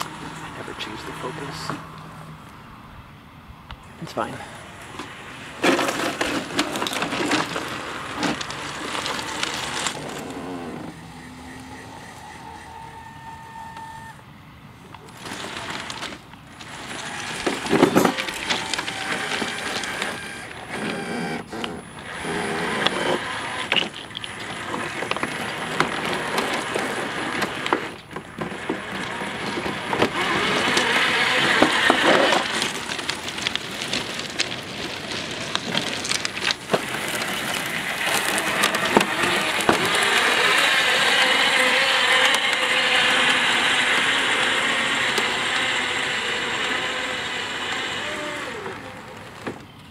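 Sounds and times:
electric motors whining: 0.0 - 2.9, 3.8 - 49.9
tracks crackling through grass: 14.7 - 49.9.

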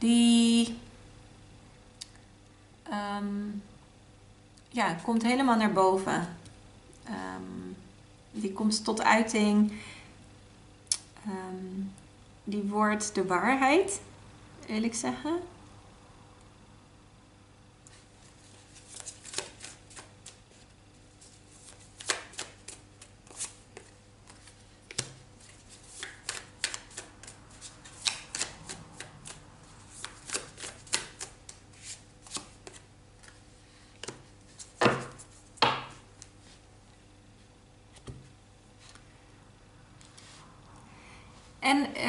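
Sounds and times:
cards shuffling and snapping: 18.5 - 20.4, 21.3 - 33.4, 34.0 - 36.4
cards slapping on wooden table: 18.9 - 20.4, 21.7 - 25.2, 26.0 - 29.4, 30.0 - 31.6, 34.0 - 36.0.

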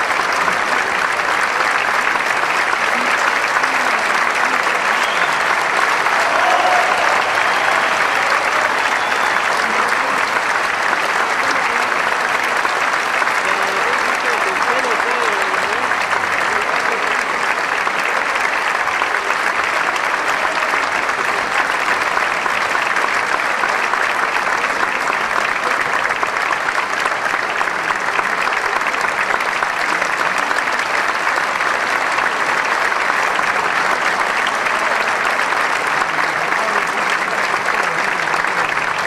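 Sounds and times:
audience applauding: 0.0 - 39.0.

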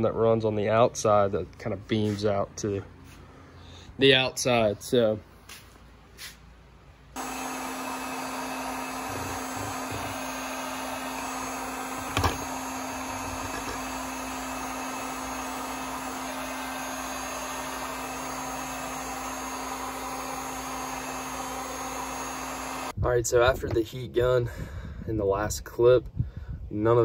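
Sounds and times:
heat gun fan humming: 7.1 - 23.0.

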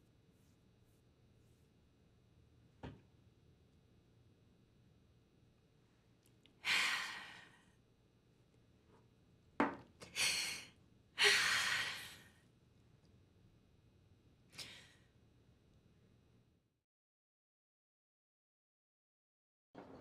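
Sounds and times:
woman breathing heavily: 6.6 - 7.8, 10.1 - 12.4.

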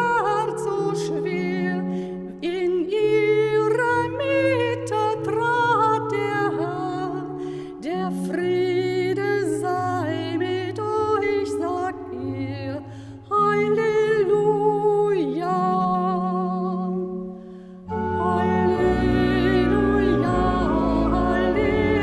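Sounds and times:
woman singing a hymn: 0.0 - 17.3, 17.9 - 22.0
organ accompaniment: 17.8 - 22.0.

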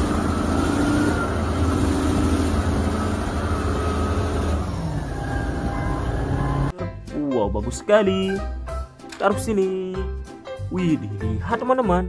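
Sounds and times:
diesel engine rumbling under load: 0.0 - 6.7.

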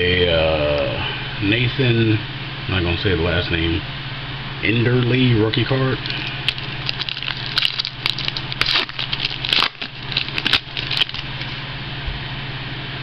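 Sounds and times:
steady low hum: 0.0 - 13.0
foil wrapper crinkling and tearing: 6.0 - 11.6.

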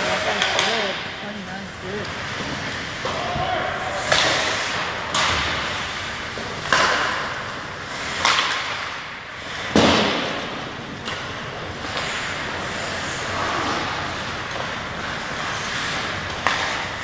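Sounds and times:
hockey sticks and puck cracking: 0.0 - 17.0.

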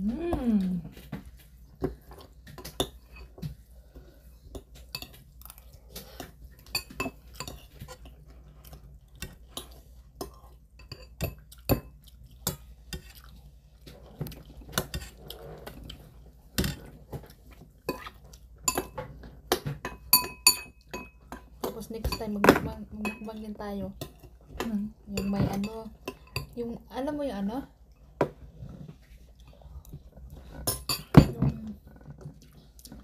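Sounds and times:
utensils clinking on metal bowls: 19.7 - 23.4, 24.0 - 26.6, 30.7 - 31.8.

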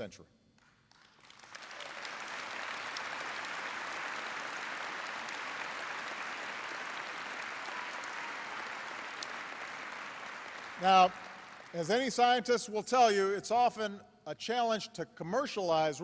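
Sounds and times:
audience applauding: 0.9 - 12.4.

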